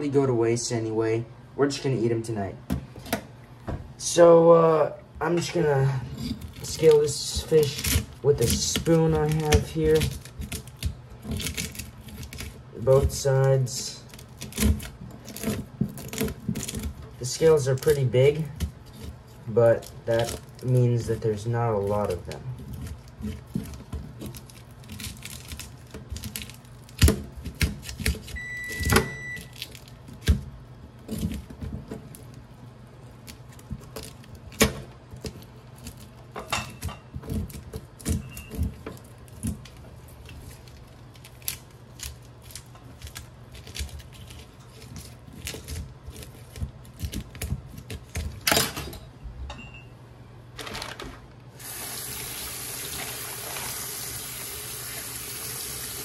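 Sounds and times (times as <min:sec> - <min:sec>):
faucet water running: 0:51.6 - 0:56.0.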